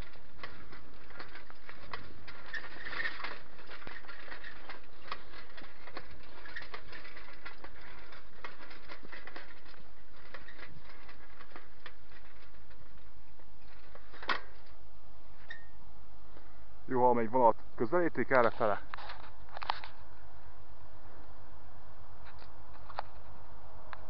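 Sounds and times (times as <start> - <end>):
camera handling clicks and rustles: 18.8 - 20.0.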